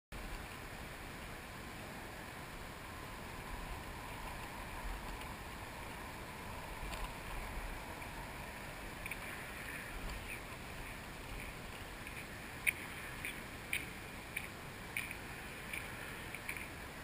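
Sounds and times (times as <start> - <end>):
wind rumble on microphone: 0.2 - 17.0
faint soft clicks: 9.0 - 10.6, 11.3 - 16.8.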